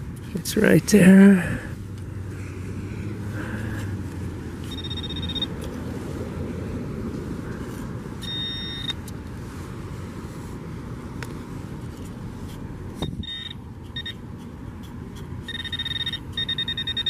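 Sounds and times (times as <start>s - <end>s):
metal detector beeps: 4.6s - 5.6s, 8.2s - 9.0s, 13.0s - 14.2s, 15.4s - 17.0s.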